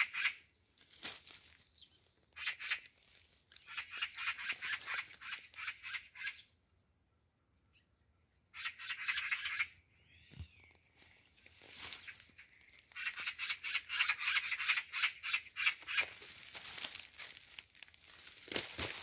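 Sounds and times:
undergrowth rustling and crackling: 0.7 - 5.7, 10.4 - 14.2, 15.6 - 19.0
bird chirp: 1.5 - 2.8, 3.6 - 16.5.

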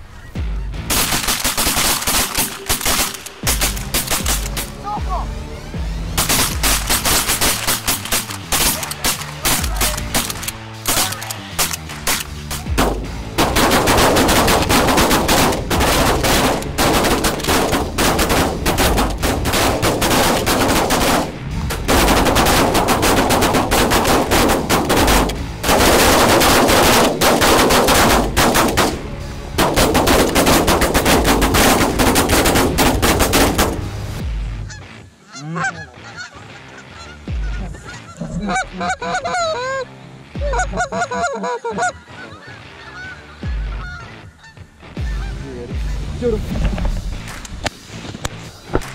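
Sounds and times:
geese honking: 0.0 - 29.0, 29.7 - 46.9
shotgun shots: 0.8 - 4.8, 6.2 - 34.2.

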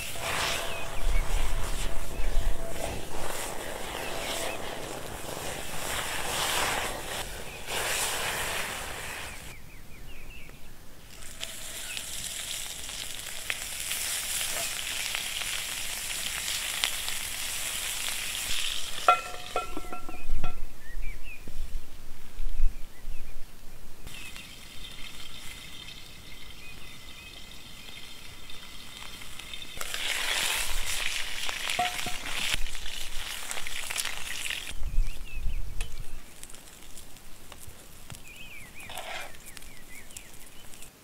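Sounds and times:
food sizzling in skillet: 0.0 - 9.6, 11.1 - 20.3, 24.1 - 34.8, 36.4 - 40.9
metallic skillet clanks: 19.0 - 20.6, 31.8 - 32.3.

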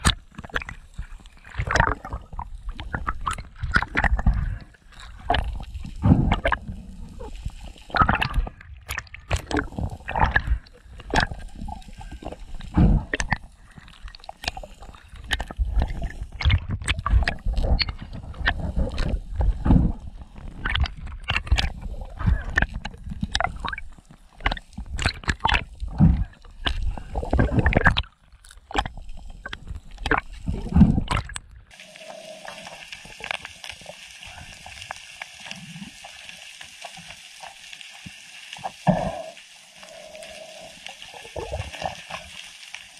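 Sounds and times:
underwater clicks and thumps: 0.0 - 6.9, 7.9 - 11.6, 12.2 - 31.6
steady hiss: 31.7 - 42.9.

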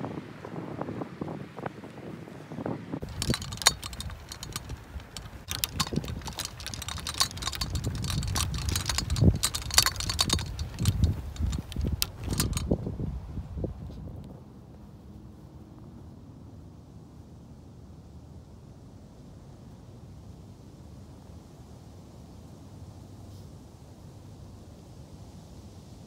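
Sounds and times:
wind rumble on microphone: 0.0 - 16.6
phone handling clicks and rustling: 3.0 - 12.7.

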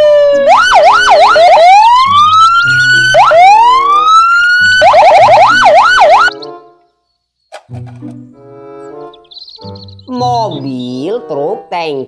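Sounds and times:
police siren: 0.0 - 6.4.

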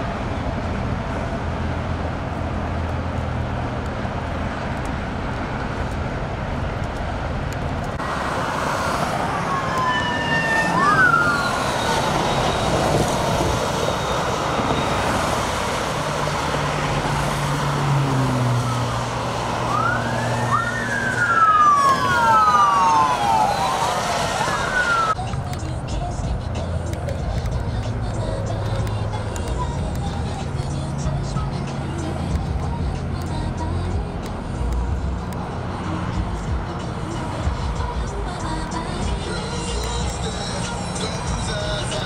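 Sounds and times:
traffic noise: 0.0 - 42.0
police sirens: 8.0 - 25.2.

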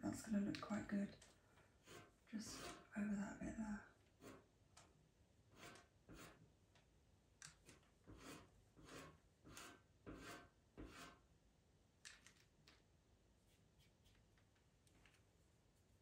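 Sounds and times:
pencil scratching on paper: 1.7 - 3.0, 4.1 - 4.5, 5.5 - 6.5, 7.6 - 11.2.

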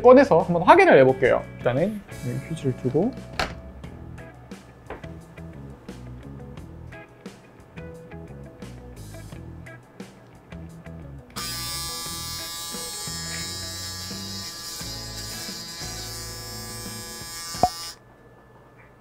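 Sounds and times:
electric shaver buzzing: 2.0 - 2.6, 11.3 - 18.0.

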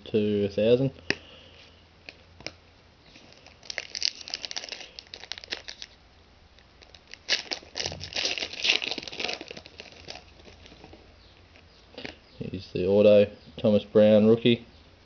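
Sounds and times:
foil wrapper crinkling and tearing: 3.1 - 6.0, 6.6 - 11.1.

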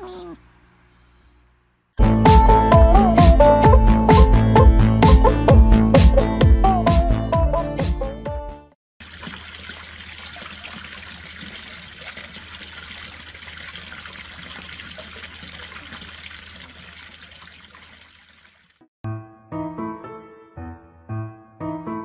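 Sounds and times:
piano music: 2.0 - 8.7, 19.0 - 22.0
water pouring into basin: 9.0 - 18.9.

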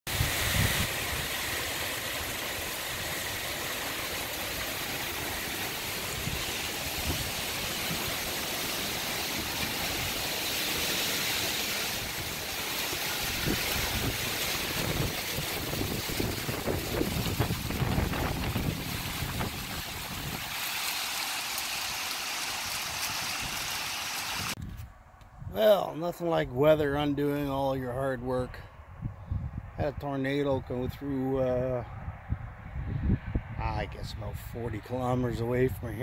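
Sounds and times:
wind gusts buffeting microphone: 0.1 - 1.6, 5.0 - 10.5, 11.9 - 20.5, 28.3 - 36.0
wind-driven rain hissing: 0.1 - 24.7.

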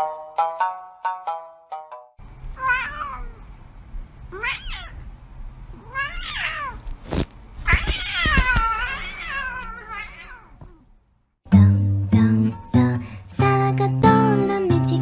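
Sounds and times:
cat meowing: 2.6 - 3.4, 4.3 - 5.0, 5.7 - 6.9, 7.6 - 10.9.

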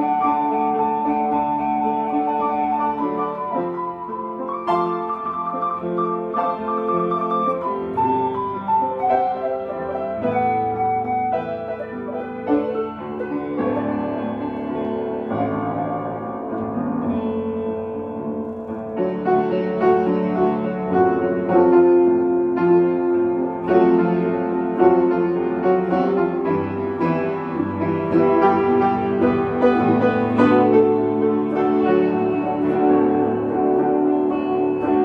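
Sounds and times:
clean electric guitars playing: 0.0 - 35.0.

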